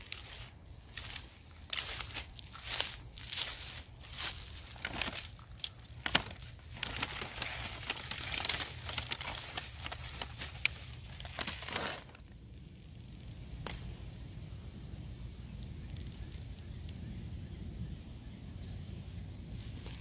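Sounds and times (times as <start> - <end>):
paper bag crinkling: 0.0 - 12.4.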